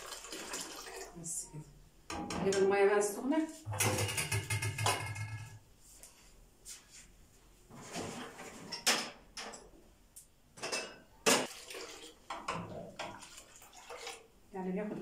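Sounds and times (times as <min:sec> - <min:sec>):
dishes knocking and scraping: 0:03.7 - 0:05.6, 0:07.8 - 0:09.7, 0:10.6 - 0:11.5, 0:12.3 - 0:13.2.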